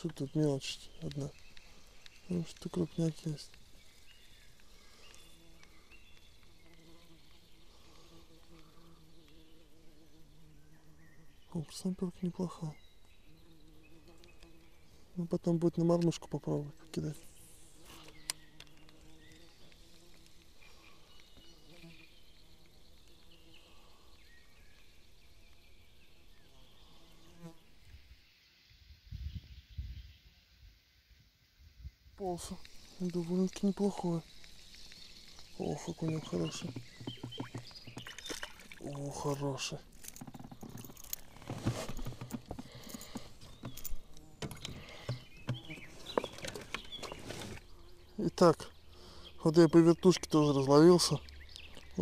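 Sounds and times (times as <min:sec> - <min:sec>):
flying insect buzzing: 0:02.9 - 0:11.5, 0:13.2 - 0:15.1, 0:16.7 - 0:25.2, 0:25.8 - 0:27.9, 0:32.2 - 0:48.2
light knocks in a boat: 0:36.5 - 0:38.8.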